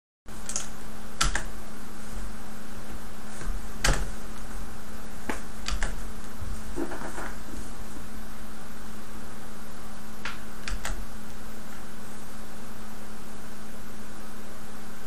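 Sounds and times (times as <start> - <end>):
steady low hum: 0.3 - 15.0
computer keys clicking: 0.4 - 1.5, 5.3 - 6.0, 10.2 - 11.0.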